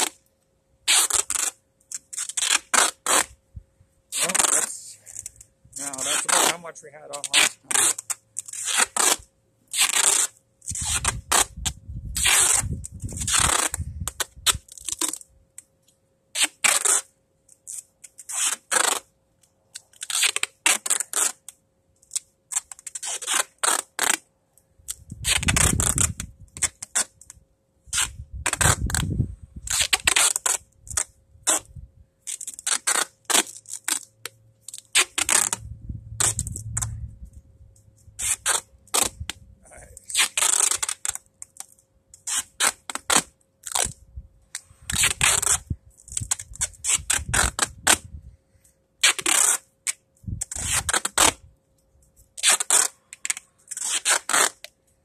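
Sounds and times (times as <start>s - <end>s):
duct tape ripping: 0.0s - 3.4s, 4.1s - 15.7s, 16.4s - 19.1s, 19.7s - 37.0s, 38.1s - 48.1s, 49.0s - 51.5s, 52.3s - 54.8s
tape roll bumps: 24.9s - 31.7s, 32.3s - 35.6s.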